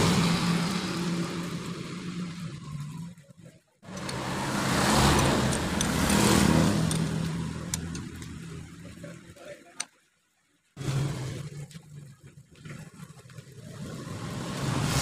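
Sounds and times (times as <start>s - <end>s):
vehicle engine running: 0.0s - 9.4s
hand tools clicking on metal: 5.0s - 8.4s.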